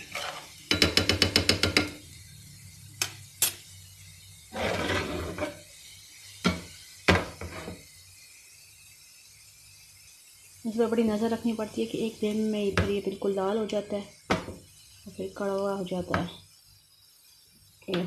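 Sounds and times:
pan scraping on burner grate: 0:00.0 - 0:00.8, 0:04.5 - 0:05.8, 0:06.4 - 0:08.0
steel spoon clattering against pan: 0:00.0 - 0:02.0.

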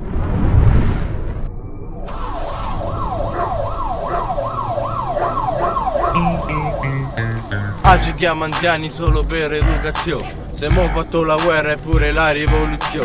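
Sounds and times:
yelping siren: 0:02.1 - 0:07.9
music with bass line: 0:06.2 - 0:08.3, 0:09.1 - 0:11.0, 0:12.0 - 0:13.0.

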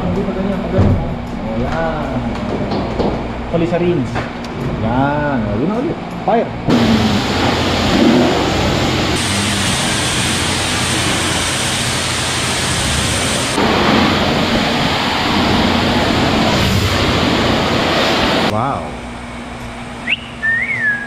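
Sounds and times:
pressure washer spraying water: 0:06.7 - 0:18.5.

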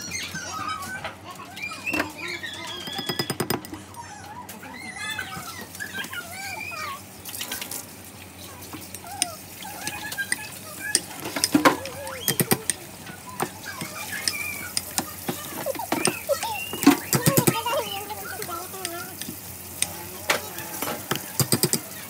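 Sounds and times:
avocado being mashed: 0:09.0 - 0:17.6
spoon clicking against bowl: 0:12.2 - 0:12.8, 0:21.1 - 0:21.9.

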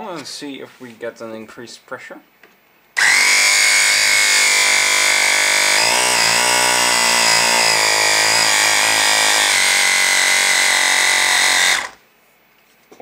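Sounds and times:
air compressor running: 0:03.0 - 0:12.0.

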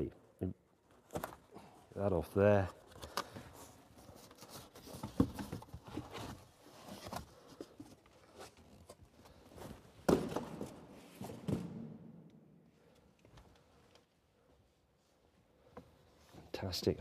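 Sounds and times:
cardboard rustling and scraping: 0:03.4 - 0:09.9.

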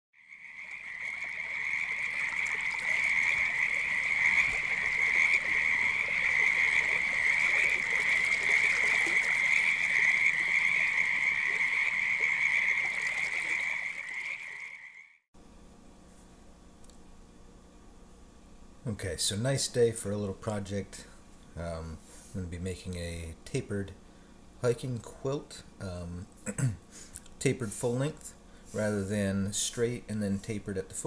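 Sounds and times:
frogs calling in high trill: 0:00.2 - 0:15.2.

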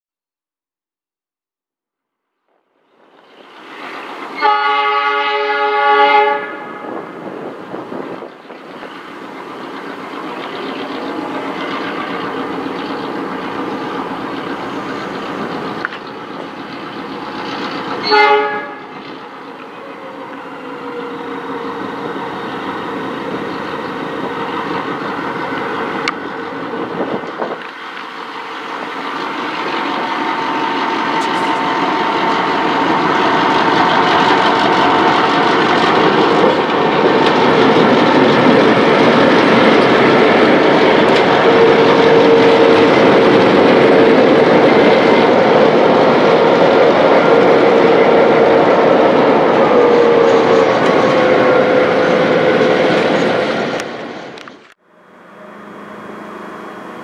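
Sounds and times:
train rail noise: 0:02.5 - 0:57.0
diesel locomotive engines running: 0:02.9 - 0:57.0
locomotive horn: 0:04.3 - 0:07.0, 0:18.0 - 0:19.0, 0:19.6 - 0:22.6, 0:41.0 - 0:43.4, 0:48.2 - 0:52.8, 0:54.8 - 0:57.0.

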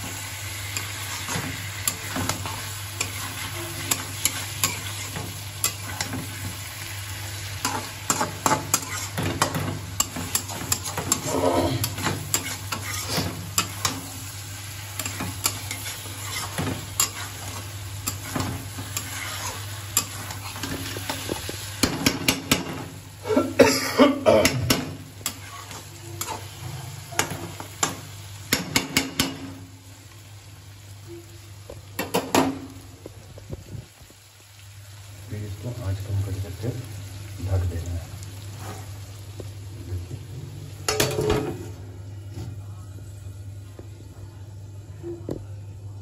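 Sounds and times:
chicken sizzling in oil: 0:00.0 - 0:42.0
metal spatula scraping pan: 0:00.8 - 0:06.3, 0:07.6 - 0:14.1, 0:15.0 - 0:21.3, 0:24.6 - 0:27.6.

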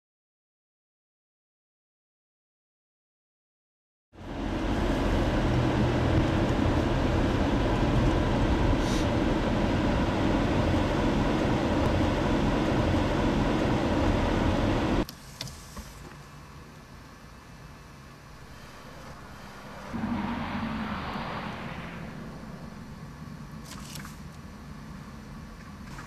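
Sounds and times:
engine and road rumble: 0:04.2 - 0:15.1, 0:17.6 - 0:26.0.

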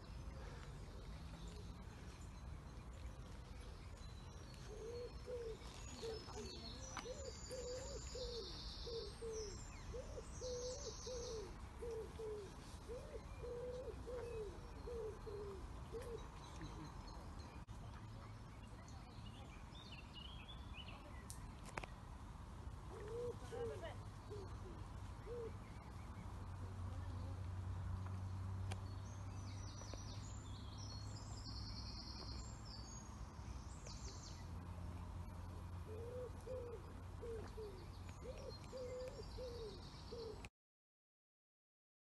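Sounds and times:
bird cooing: 0:04.6 - 0:16.9, 0:22.9 - 0:25.6, 0:35.8 - 0:40.4.

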